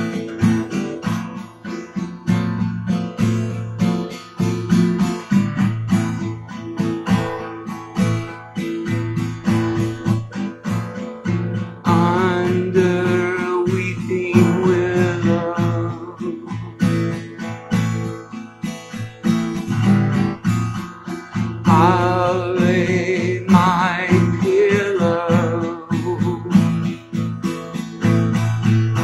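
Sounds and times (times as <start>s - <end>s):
acoustic guitar strumming: 0.0s - 29.0s
wordless vocal with vibrato: 11.9s - 17.1s, 21.7s - 26.9s.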